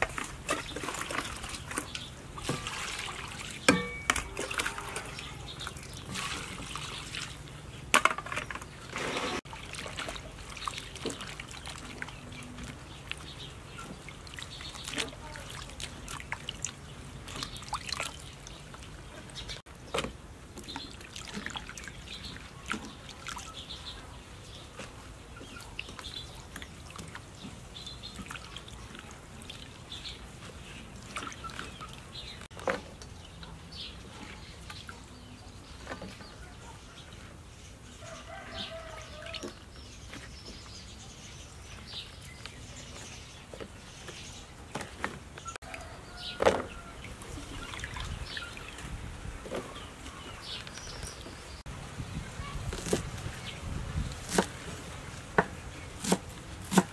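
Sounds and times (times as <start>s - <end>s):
water splashing in a steel bowl: 0.0s - 8.6s, 9.4s - 19.6s, 20.6s - 24.0s, 25.5s - 30.3s, 46.0s - 49.0s.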